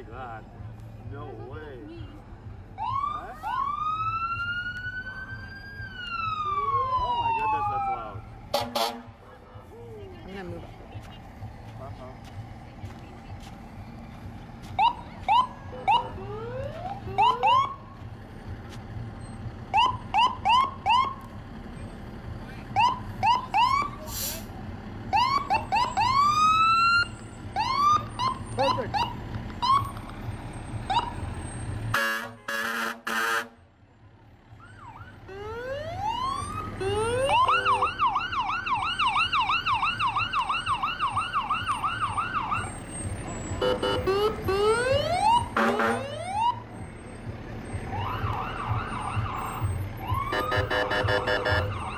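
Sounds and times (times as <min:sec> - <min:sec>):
electronic sirens whooping and yelping: 0:02.8 - 0:08.3, 0:14.8 - 0:17.8, 0:19.7 - 0:21.2, 0:22.8 - 0:23.9, 0:25.1 - 0:29.9, 0:34.6 - 0:46.6, 0:47.9 - 0:51.9.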